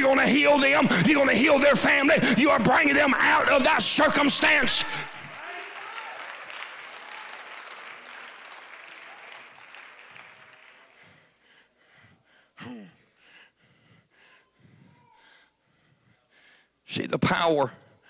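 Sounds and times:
congregation applauding: 0:03.6 - 0:11.4.

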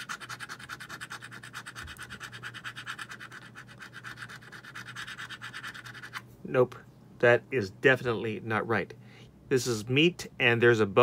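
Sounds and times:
coin scratching ticket: 0:00.0 - 0:06.2.

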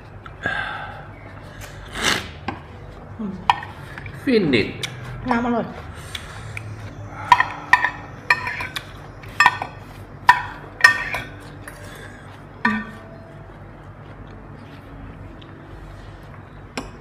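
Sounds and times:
cutlery clinking on glass bowl: 0:07.3 - 0:11.8, 0:12.6 - 0:13.0.

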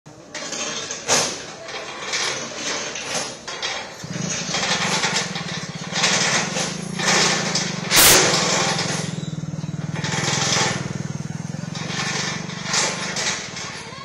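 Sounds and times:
lorry engine idling: 0:00.1 - 0:14.0
noisy rushes: 0:04.0 - 0:09.3.

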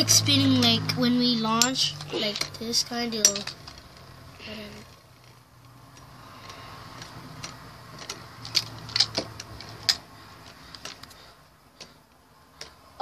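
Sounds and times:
spinning tops clacking together: 0:01.5 - 0:04.0.

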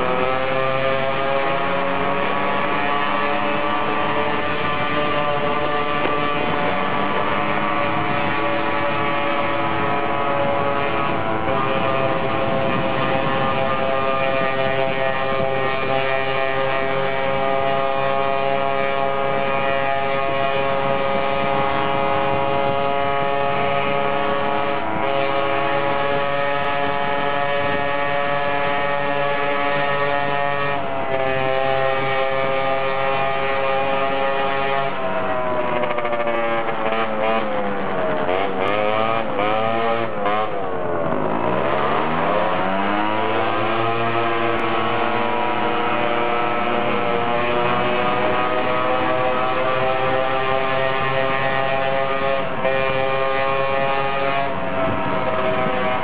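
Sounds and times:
scooter engine revving: 0:00.0 - 0:56.0.

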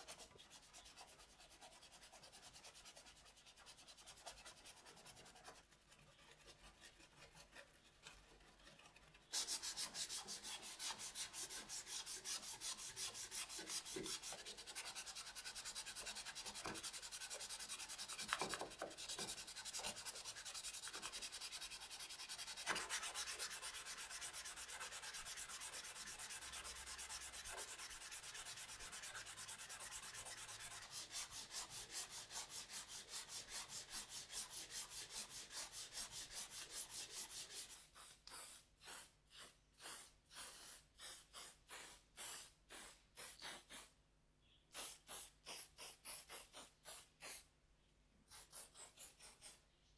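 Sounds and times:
sandpaper rasping on plastic: 0:00.0 - 0:43.9, 0:44.7 - 0:47.5, 0:48.3 - 0:49.6.

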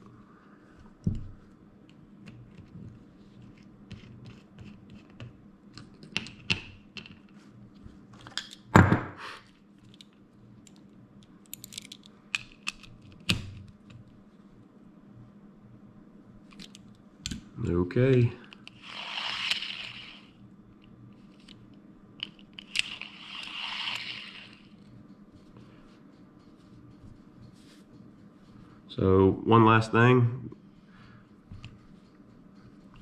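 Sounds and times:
metal reel parts clicking: 0:22.2 - 0:24.8.

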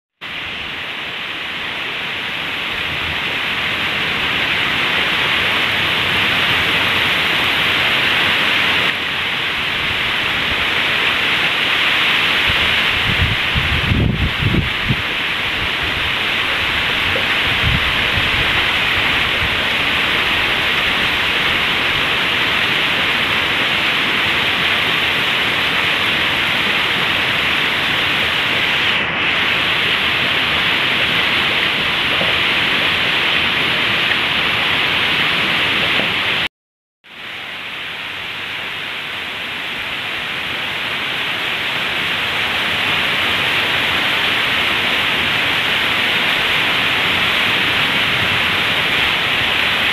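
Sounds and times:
heavy rain on lawn and trees: 0:00.2 - 0:36.5, 0:37.1 - 0:49.9.

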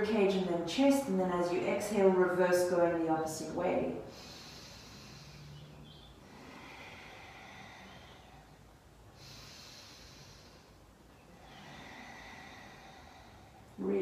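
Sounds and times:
deep breathing through nose: 0:04.0 - 0:13.8.

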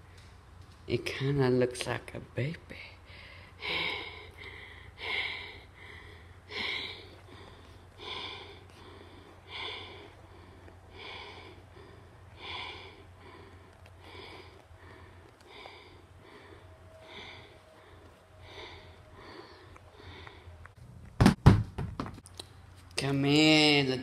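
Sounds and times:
child breathing: 0:02.8 - 0:20.8.

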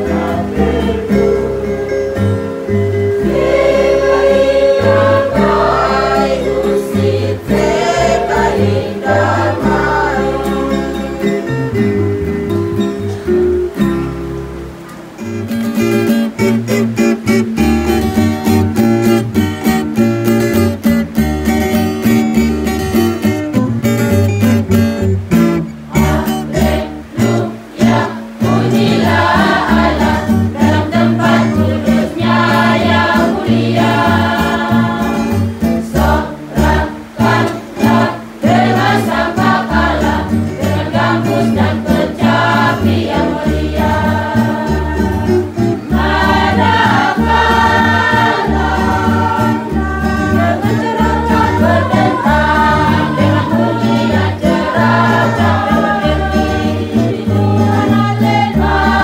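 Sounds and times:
choir singing a hymn: 0:00.0 - 0:11.9, 0:25.9 - 0:59.0
strummed acoustic guitar: 0:00.0 - 0:59.0.

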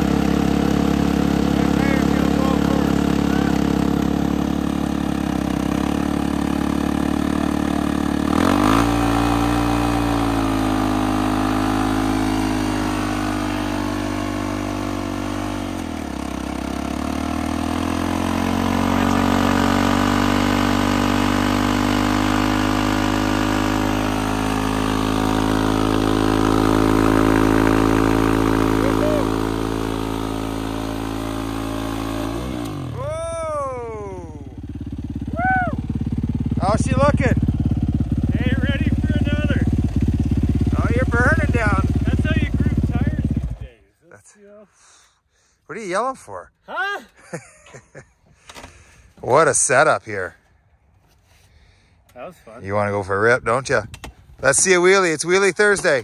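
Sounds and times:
tire spinning in burnout: 0:00.0 - 0:43.6
dirt bike engine revving: 0:00.0 - 0:43.8.

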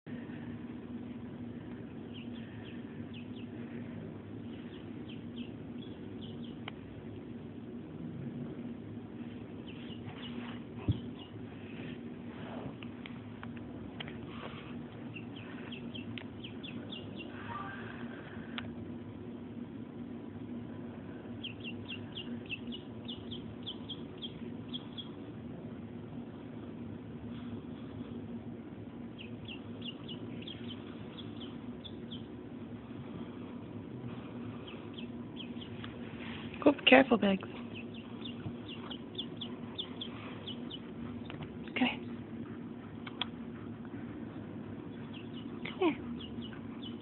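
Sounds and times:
steady low hum: 0:00.0 - 0:47.0
duckling peeping: 0:02.0 - 0:03.7, 0:04.4 - 0:06.7, 0:09.5 - 0:11.6, 0:15.0 - 0:18.0, 0:21.4 - 0:25.3, 0:29.1 - 0:32.4, 0:34.4 - 0:36.0, 0:37.4 - 0:42.3, 0:42.9 - 0:47.0.

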